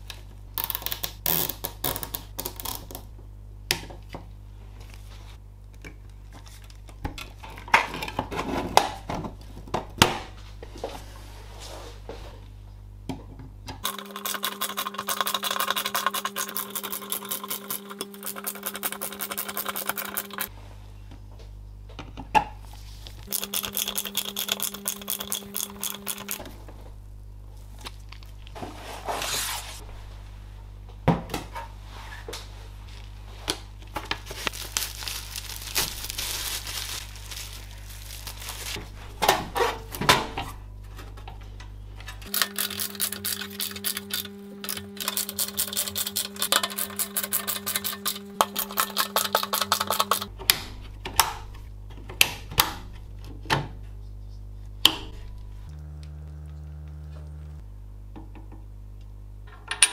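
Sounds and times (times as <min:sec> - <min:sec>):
electric screwdriver whining: 0:23.3 - 0:26.5, 0:42.3 - 0:50.3
metal parts clinking and rattling: 0:42.2 - 0:50.3.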